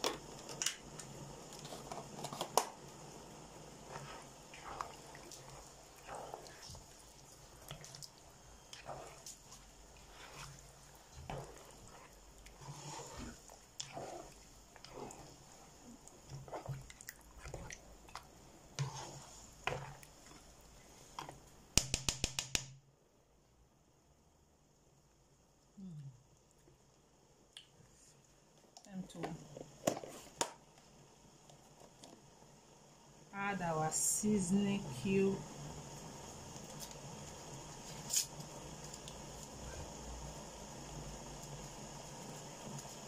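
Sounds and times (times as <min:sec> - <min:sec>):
spatula stirring thick soup: 0:00.0 - 0:22.4, 0:35.6 - 0:43.0
soup clicking and popping: 0:13.2 - 0:19.0.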